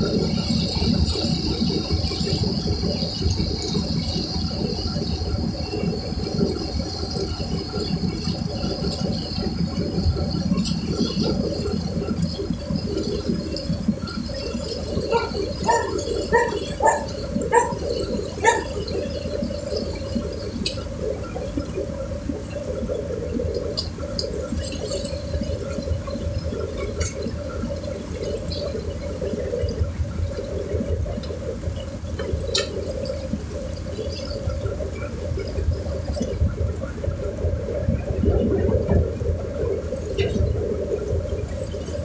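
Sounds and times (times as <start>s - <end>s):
river water churning and sloshing: 0.0s - 42.0s.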